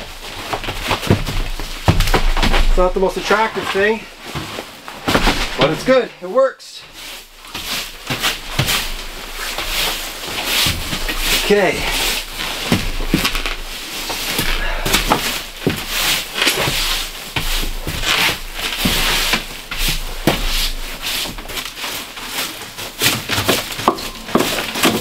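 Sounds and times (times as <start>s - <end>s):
broom sweeping a wooden floor: 6.8s - 25.0s.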